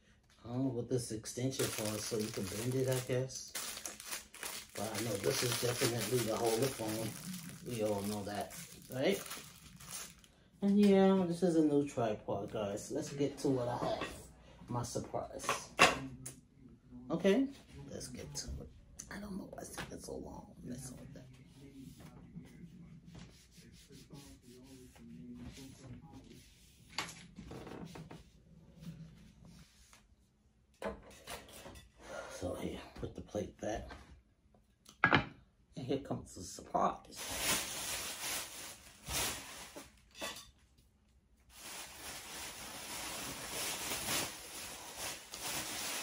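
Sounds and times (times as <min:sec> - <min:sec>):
rustling and handling noises: 0:01.2 - 0:11.4, 0:37.1 - 0:46.0.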